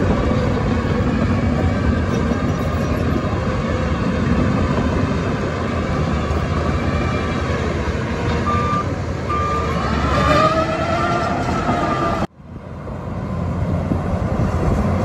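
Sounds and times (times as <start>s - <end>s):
heavy diesel machinery rumbling: 0.0s - 15.0s
reversing alarm beeps: 8.4s - 9.8s.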